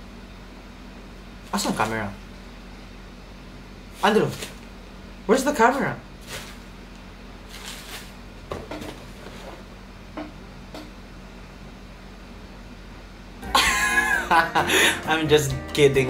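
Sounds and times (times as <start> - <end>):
steady low hum: 0.0 - 16.0
paper and cardboard rustling: 7.5 - 9.6
voice or music: 13.4 - 16.0.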